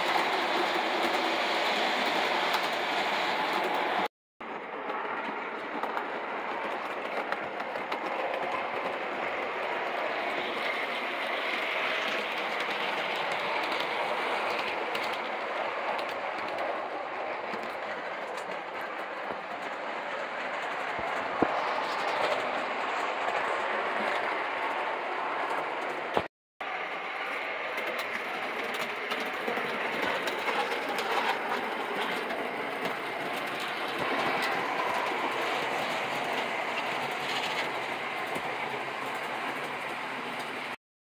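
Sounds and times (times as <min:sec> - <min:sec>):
model train running on track: 0:00.0 - 0:40.8.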